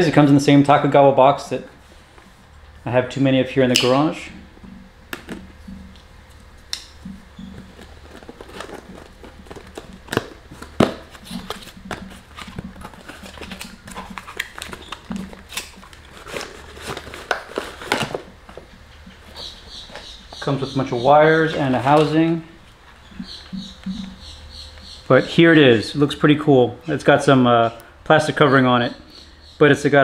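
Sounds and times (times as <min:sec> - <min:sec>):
cardboard flaps rustling: 0:07.0 - 0:20.5.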